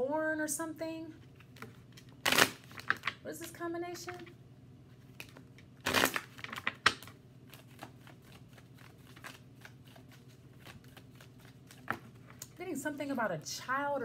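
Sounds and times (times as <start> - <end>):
cards shuffled by hand: 1.2 - 4.3, 5.0 - 12.5.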